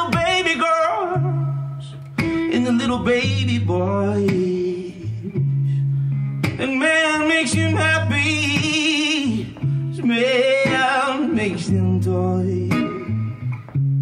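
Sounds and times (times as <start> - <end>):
person singing with vibrato: 0.0 - 5.5, 6.5 - 13.1
guitar: 0.0 - 14.0
sustained bass notes: 0.0 - 14.0.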